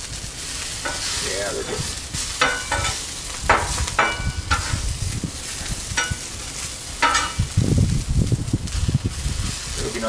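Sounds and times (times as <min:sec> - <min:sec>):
vegetables sizzling on griddle: 0:00.0 - 0:10.0
metal spatula scraping steel: 0:00.8 - 0:04.8.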